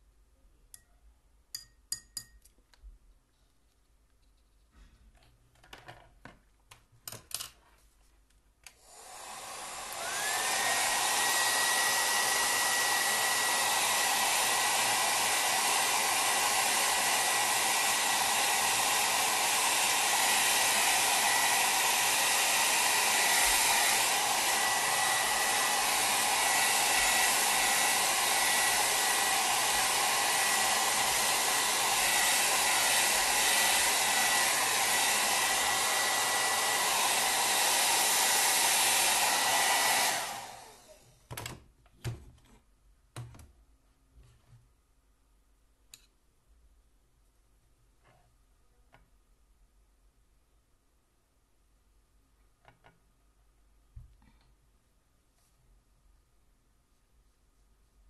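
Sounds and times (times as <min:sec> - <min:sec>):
hair dryer running: 0:08.8 - 0:41.2.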